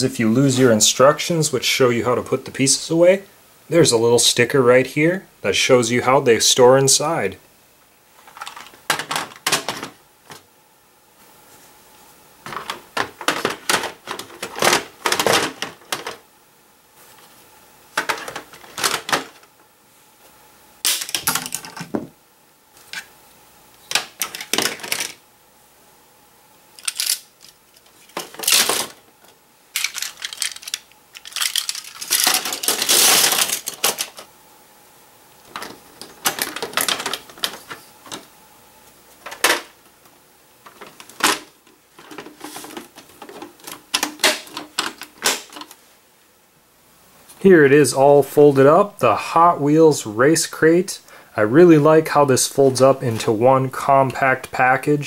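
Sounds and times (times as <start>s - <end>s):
plastic toy parts clattering: 8.2s - 10.4s, 12.4s - 16.2s, 18.0s - 19.5s, 20.8s - 22.0s, 23.9s - 25.2s, 26.8s - 34.3s, 35.5s - 38.3s, 40.6s - 45.8s.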